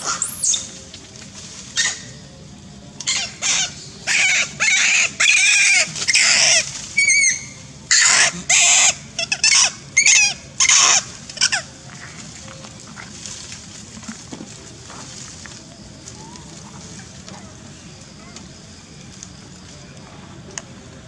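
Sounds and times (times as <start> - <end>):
macaques screaming and squealing: 0.0 - 0.8, 1.8 - 2.2, 3.0 - 11.7.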